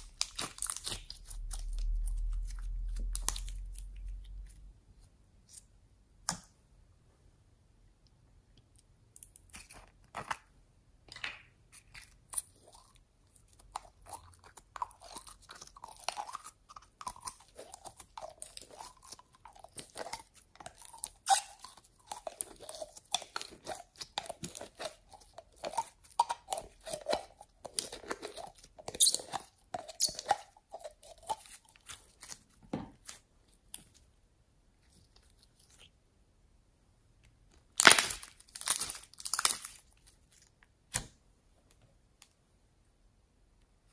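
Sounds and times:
slime squelching and crackling: 0.0 - 5.7, 11.7 - 34.1, 34.8 - 36.0, 37.6 - 41.1.

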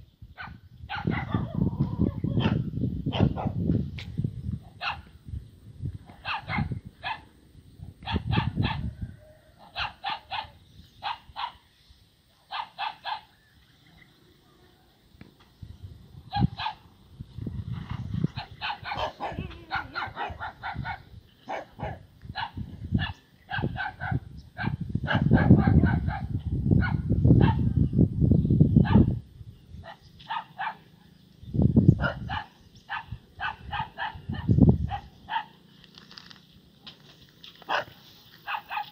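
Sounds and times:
dog barking: 0.4 - 1.6, 2.4 - 3.6, 4.8 - 5.1, 6.2 - 7.3, 8.0 - 8.9, 9.7 - 11.6, 12.5 - 13.3, 16.3 - 16.8, 18.4 - 27.7, 28.8 - 29.1, 29.8 - 30.9, 32.0 - 35.6, 37.7 - 38.9.

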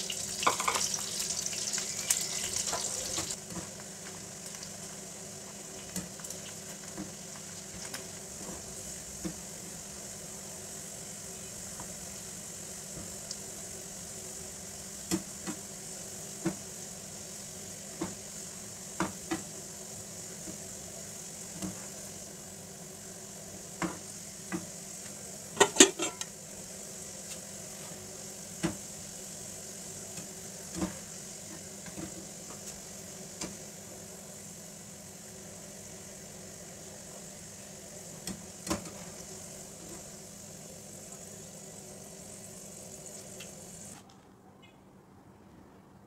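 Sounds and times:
onions sizzling in oil: 0.0 - 44.0
metal skimmer clinking on pan: 25.6 - 26.2.

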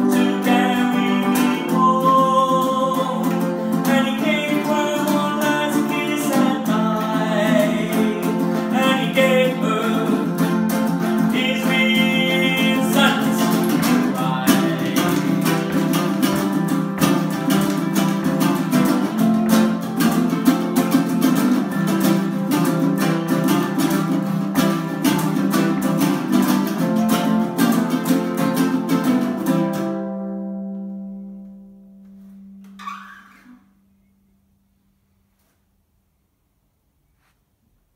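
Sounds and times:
ukuleles playing: 0.0 - 32.3.

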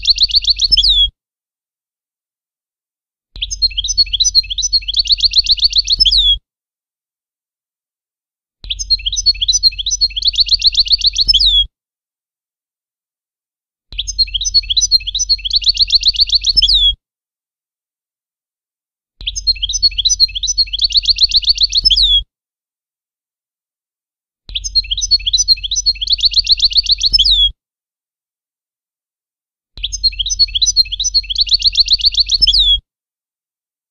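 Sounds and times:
goldfinch singing: 0.0 - 1.1, 3.4 - 6.4, 8.7 - 11.6, 14.0 - 16.9, 19.2 - 22.2, 24.5 - 27.5, 29.8 - 32.8.

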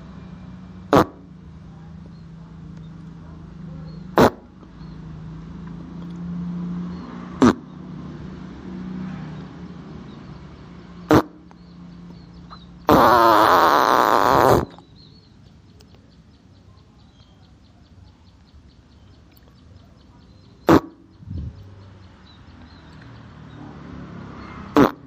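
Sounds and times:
fart sounds: 0.9 - 1.2, 4.2 - 4.5, 7.4 - 7.6, 11.1 - 11.4, 12.9 - 14.8, 20.7 - 21.0, 24.7 - 25.0.

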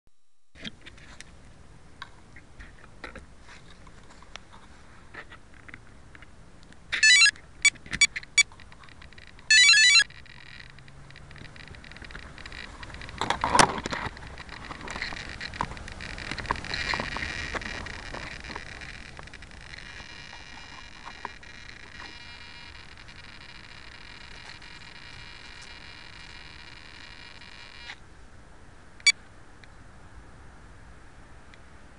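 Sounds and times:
electronic beeps: 7.0 - 8.5, 9.2 - 10.8.

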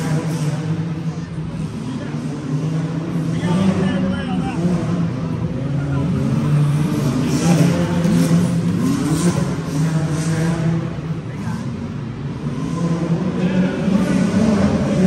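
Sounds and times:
engine revs: 0.0 - 15.0
vehicle engine running: 0.0 - 15.0.

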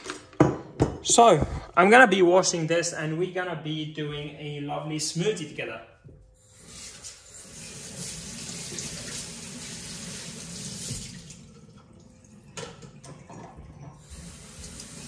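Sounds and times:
tap water running into sink: 6.4 - 15.0.

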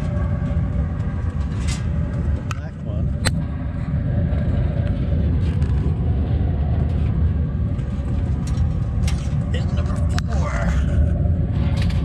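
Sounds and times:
low rumble: 0.0 - 12.0.

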